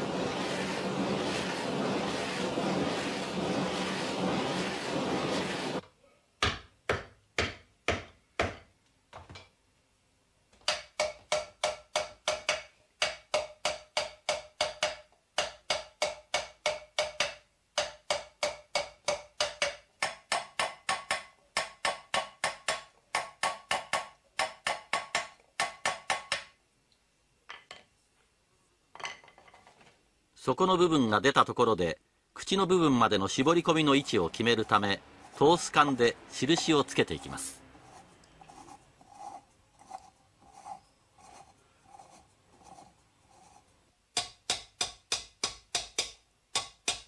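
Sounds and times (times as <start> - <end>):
gas torch hissing: 0.0 - 5.8
hammer striking metal vessel: 10.7 - 26.5, 44.2 - 47.0.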